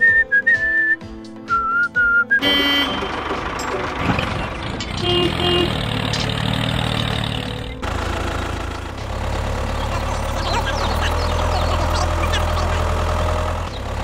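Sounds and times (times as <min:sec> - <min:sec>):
small motor rattling: 0:02.8 - 0:14.0.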